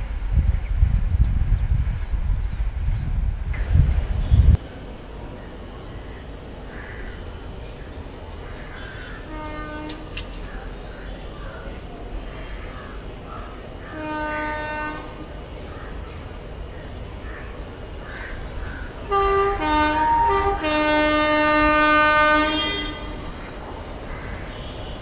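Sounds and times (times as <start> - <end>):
train rumble: 0.0 - 25.0
bird chirping: 3.6 - 19.4
train horn blasts: 8.8 - 10.4, 13.8 - 15.4, 19.0 - 23.6.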